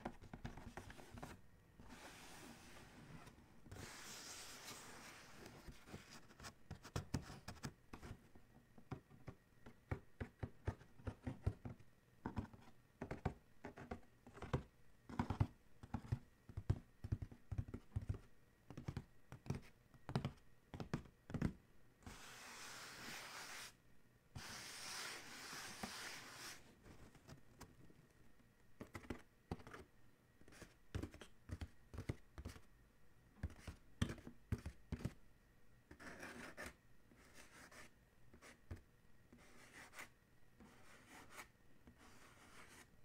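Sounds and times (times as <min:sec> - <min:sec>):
scratching across cardboard: 0:00.1 - 0:08.2, 0:22.1 - 0:23.8, 0:24.4 - 0:27.1, 0:39.4 - 0:42.9
fingertips tapping on cardboard: 0:08.8 - 0:21.6.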